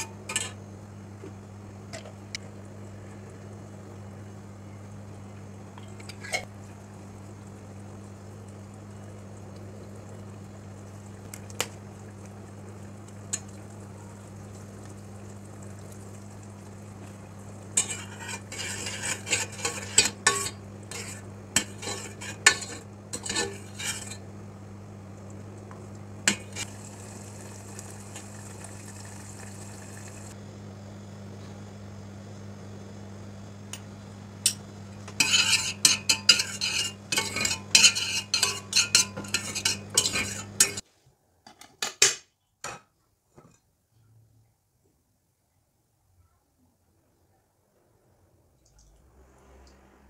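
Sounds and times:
spoon clinking and scraping pot: 0.0s - 0.6s, 17.8s - 24.2s, 26.3s - 26.7s, 34.5s - 40.8s
metal spoon stirring in saucepan: 17.8s - 24.2s, 26.3s - 26.7s, 35.1s - 40.8s
low hum: 48.6s - 50.0s.

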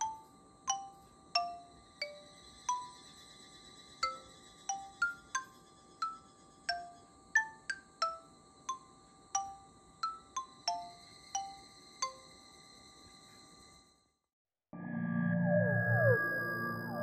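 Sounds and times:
gentle bell-like melody: 0.0s - 3.0s, 4.0s - 12.3s.

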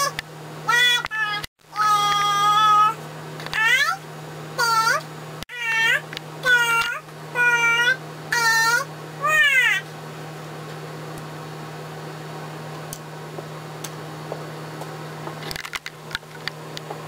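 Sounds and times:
steady low hum: 0.0s - 17.0s
small clicks and knocks: 15.3s - 17.0s.

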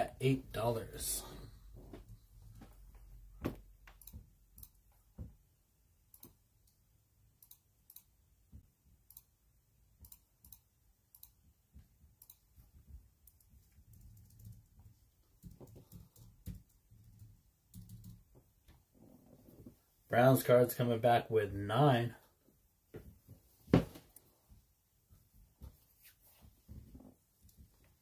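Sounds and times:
faint irregular clicking: 3.8s - 5.2s, 6.1s - 6.8s, 7.4s - 9.4s, 10.0s - 18.9s.

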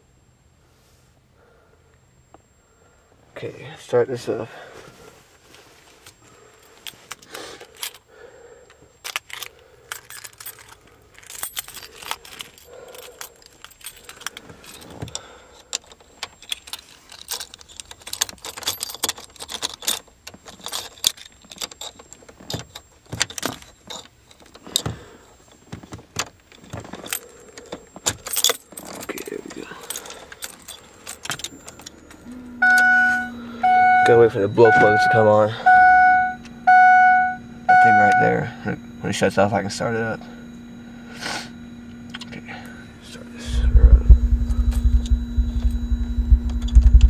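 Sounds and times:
keys jangling on key ring: 9.0s - 24.8s, 26.6s - 32.3s.

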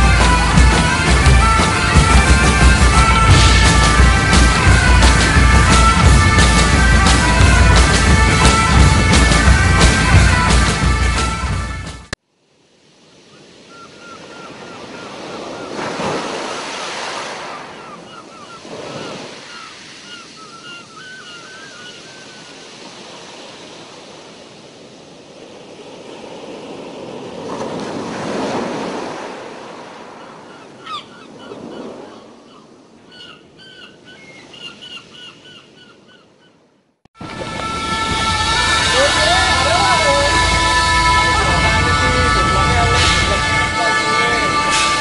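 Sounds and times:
sea waves washing: 0.0s - 35.5s, 37.2s - 45.0s
wind on microphone: 37.2s - 45.0s.

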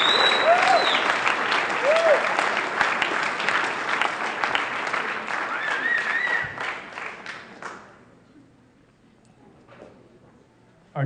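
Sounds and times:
audience applauding: 0.0s - 8.0s
high call from crowd: 5.4s - 6.7s.

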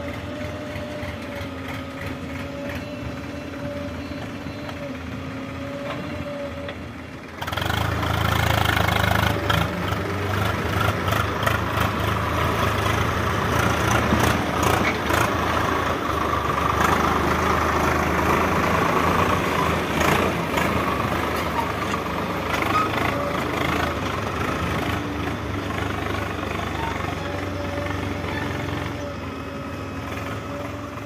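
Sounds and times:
tractor engine running: 0.0s - 31.0s.

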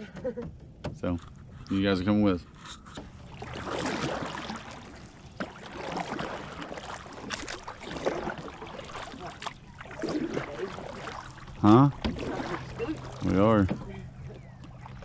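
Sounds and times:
water washing along hull: 0.2s - 15.0s
paddle strokes in water: 1.2s - 15.0s.

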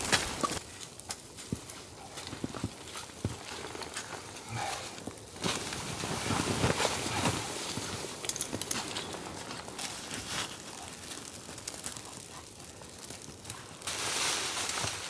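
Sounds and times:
small clicks and crinkles: 0.0s - 15.0s
tent fabric rustling: 2.0s - 11.4s, 13.8s - 15.0s.

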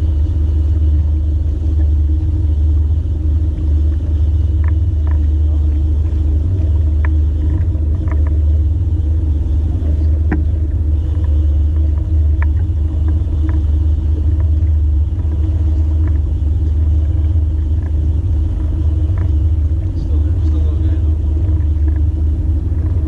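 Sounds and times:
boat motor rumbling: 0.0s - 23.0s
faint ticks: 3.5s - 5.4s, 6.1s - 23.0s.

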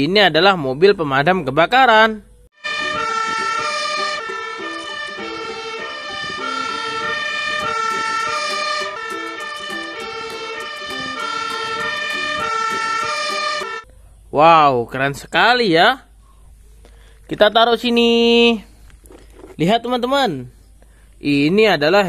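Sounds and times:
fire engine two-tone siren: 2.6s - 13.8s.

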